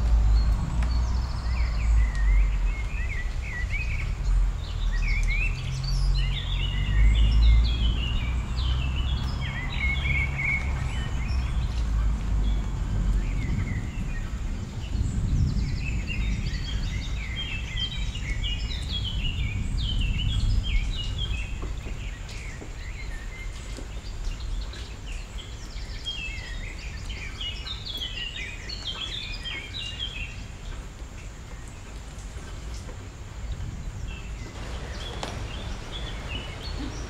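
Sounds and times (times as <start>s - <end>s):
low rumble: 0.0s - 5.1s, 34.0s - 37.0s.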